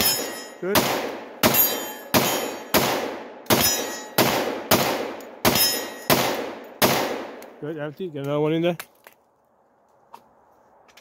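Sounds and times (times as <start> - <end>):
pistol shots with echo: 0.0 - 7.4.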